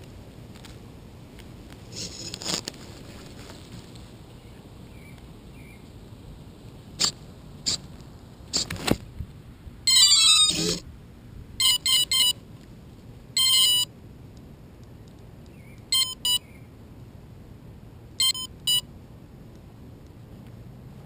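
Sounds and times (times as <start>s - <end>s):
quadcopter electronic beeps: 11.6s - 12.4s, 13.4s - 13.9s, 18.2s - 18.8s.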